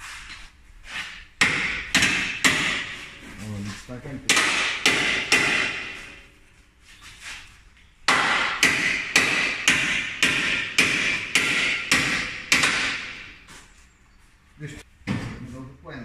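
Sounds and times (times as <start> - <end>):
hammer striking steel bodywork: 1.4 - 3.2, 4.3 - 6.2, 8.1 - 13.3.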